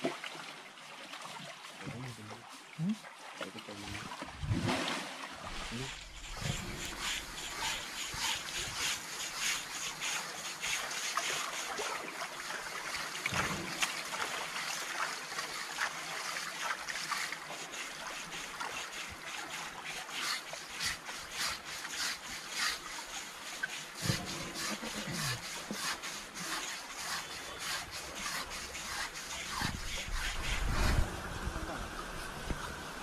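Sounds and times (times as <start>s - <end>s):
water sloshing and splashing: 0.0s - 33.0s.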